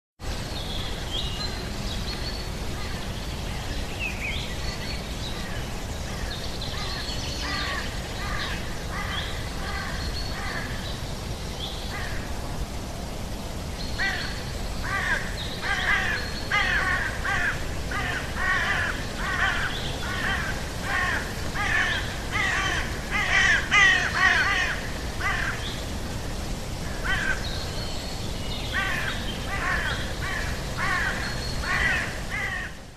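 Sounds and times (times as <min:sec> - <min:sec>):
birds cawing: 0:06.2 - 0:10.8, 0:14.0 - 0:25.8, 0:26.8 - 0:27.6, 0:28.7 - 0:32.9.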